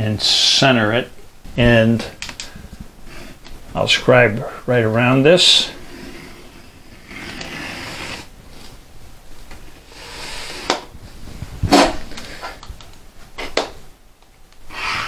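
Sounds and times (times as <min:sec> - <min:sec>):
scriber scratching metal: 0:05.8 - 0:08.3.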